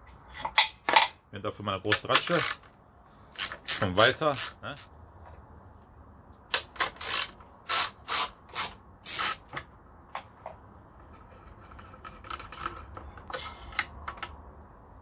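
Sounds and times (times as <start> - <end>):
ratchet clicking: 6.9 - 9.4.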